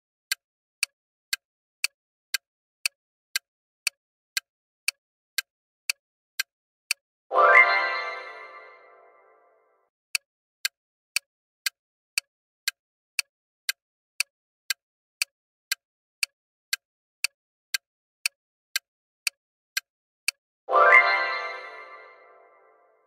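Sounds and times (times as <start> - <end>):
countdown timer ticking: 6.9 - 9.6, 20.7 - 23.0.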